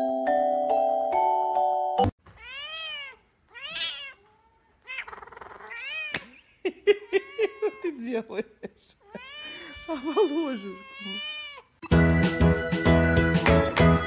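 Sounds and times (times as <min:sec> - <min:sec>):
cat meowing: 0:02.3 - 0:06.2, 0:09.0 - 0:11.8.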